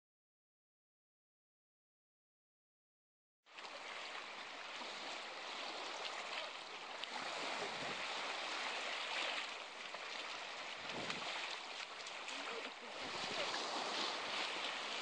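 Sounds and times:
dogs splashing in shallow water: 3.5s - 15.0s.

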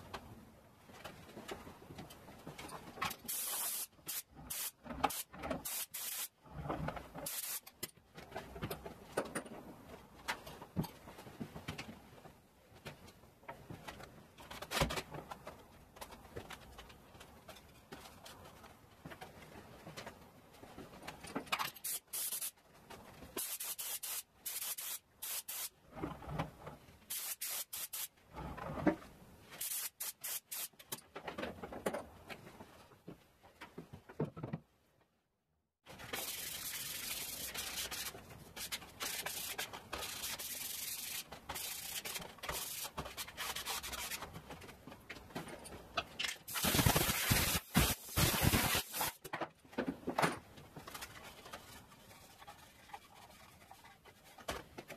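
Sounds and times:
paint sprayer hissing: 3.3s - 6.3s, 7.2s - 7.7s, 21.8s - 22.5s, 23.4s - 25.7s, 27.1s - 28.1s, 29.6s - 30.8s, 46.5s - 49.2s.

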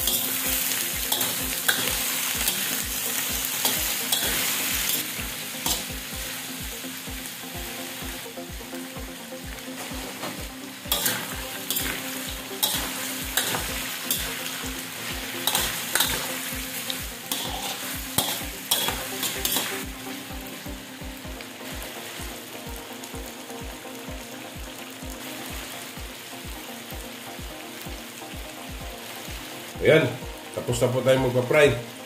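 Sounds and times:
metal spatula scraping a pan: 0.0s - 5.9s, 9.8s - 19.9s
vegetables sizzling in hot oil: 0.0s - 32.0s.

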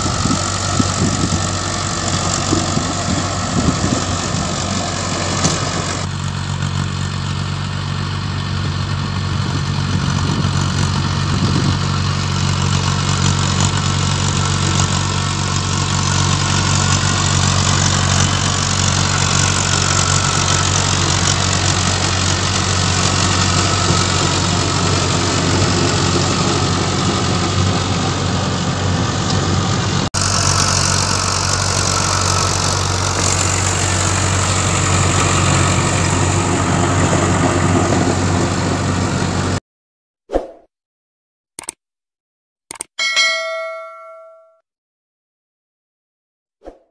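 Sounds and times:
tractor diesel engine running: 0.0s - 39.6s
short ding: 43.0s - 44.6s.

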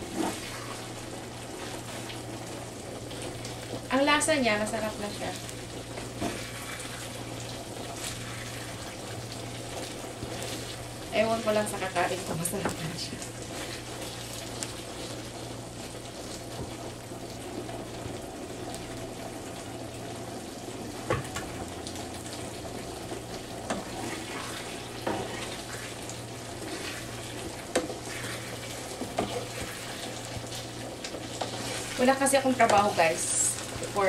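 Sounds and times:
sauce simmering in a pan: 0.0s - 34.0s.

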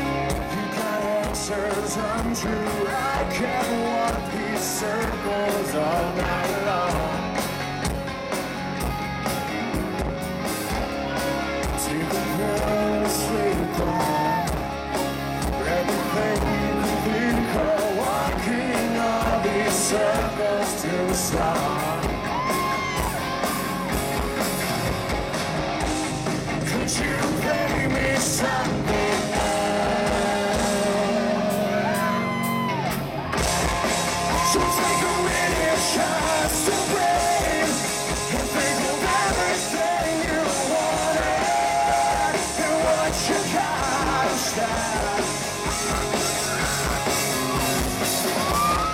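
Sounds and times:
man singing: 0.0s - 7.4s, 11.6s - 14.7s, 15.4s - 23.0s, 26.6s - 32.4s, 34.2s - 46.2s
bass guitar: 0.0s - 48.9s
drums: 0.0s - 48.9s
electric guitars: 0.0s - 48.9s.

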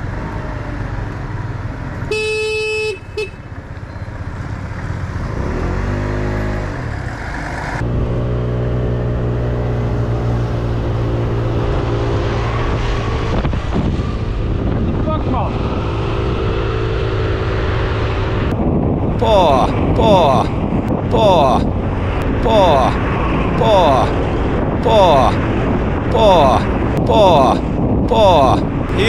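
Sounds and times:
horn tooting: 2.1s - 3.5s.

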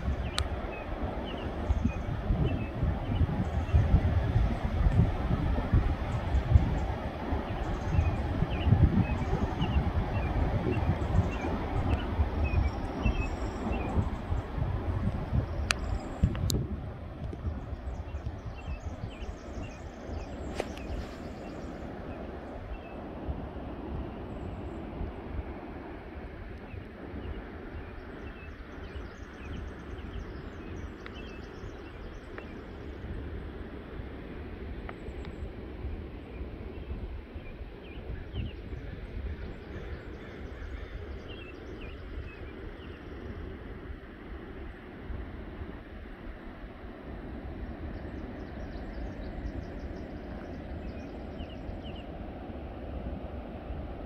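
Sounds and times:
small birds chirping: 0.0s - 5.1s, 6.0s - 16.5s, 17.2s - 23.0s, 26.6s - 33.2s, 36.2s - 43.5s, 47.6s - 52.2s
ocean surf rumbling: 0.0s - 37.8s, 38.7s - 54.0s
wind: 0.0s - 54.0s
songbird chirping: 17.3s - 23.0s.

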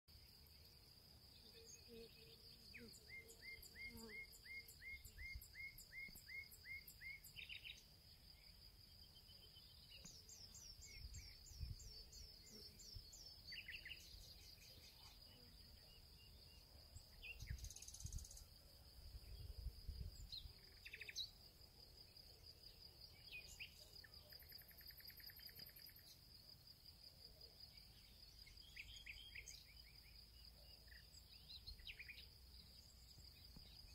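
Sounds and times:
high insect trill: 10.0s - 22.2s.

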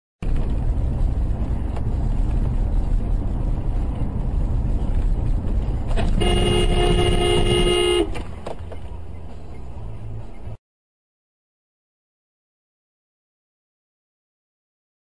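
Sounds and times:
car engine and road rumble: 0.2s - 10.6s
car horn blast: 6.0s - 8.2s.

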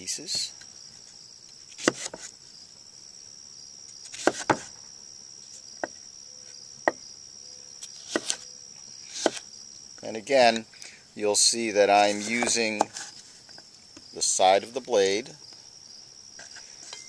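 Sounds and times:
crickets chirping: 0.0s - 17.0s
knife cutting on cutting board: 8.0s - 8.4s.

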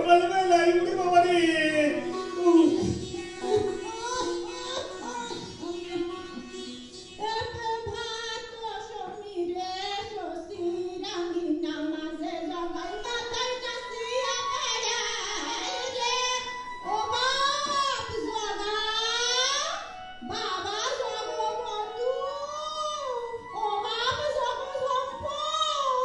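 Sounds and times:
high voice singing slow melody: 0.0s - 8.3s
keyboard accompaniment: 0.0s - 26.0s.

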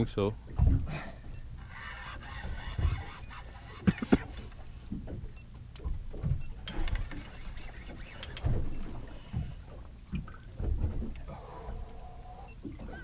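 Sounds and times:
fishing reel winding: 1.6s - 3.9s.

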